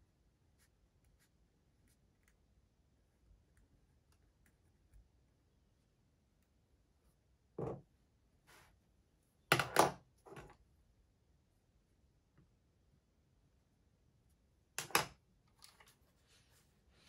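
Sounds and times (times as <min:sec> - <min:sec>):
knocks and bumps on a desk: 0:07.6 - 0:07.9.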